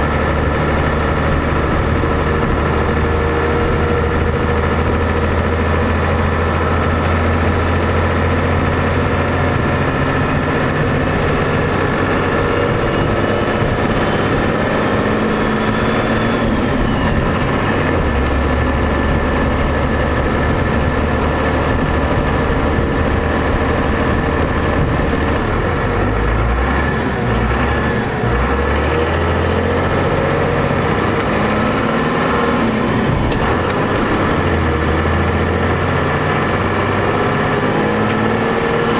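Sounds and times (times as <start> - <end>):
diesel engine running in cab: 0.0 - 38.9.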